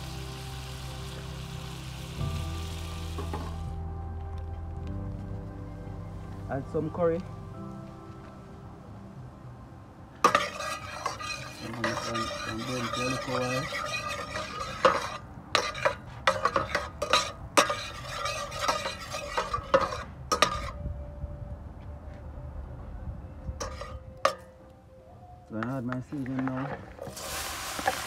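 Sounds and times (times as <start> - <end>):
butter sizzling in a pot: 0.0 - 3.6, 10.3 - 20.7, 27.1 - 28.0
spoon clinking and scraping pot: 10.2 - 20.8, 23.6 - 24.5.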